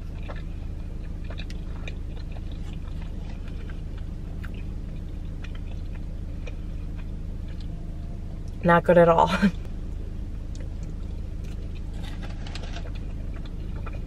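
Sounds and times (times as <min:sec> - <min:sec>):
wet mouth clicks chewing: 0:00.0 - 0:07.8, 0:10.5 - 0:14.0
steady low hum: 0:00.0 - 0:14.0.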